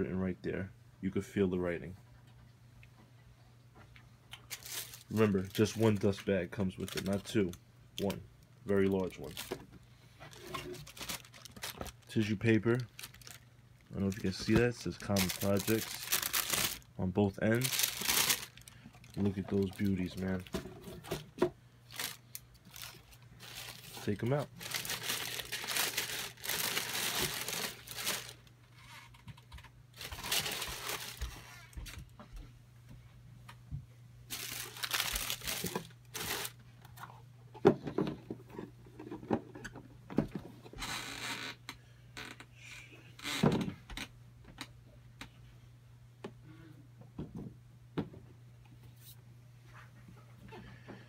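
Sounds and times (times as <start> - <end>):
tissue paper crinkling: 4.5 - 7.3, 8.8 - 9.6, 10.3 - 20.5, 21.9 - 28.5, 30.0 - 32.0, 34.3 - 36.6.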